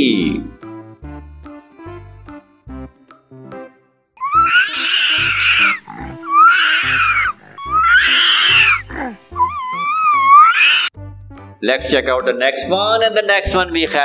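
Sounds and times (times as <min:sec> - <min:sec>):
children's music with bass beat: 0:00.0 - 0:04.6, 0:07.0 - 0:14.0
monkey screaming: 0:04.2 - 0:11.0.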